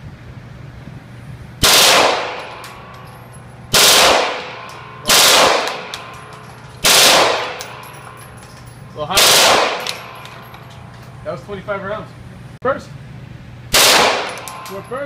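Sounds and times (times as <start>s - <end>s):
machine pistol bursts: 5.1s - 8.0s.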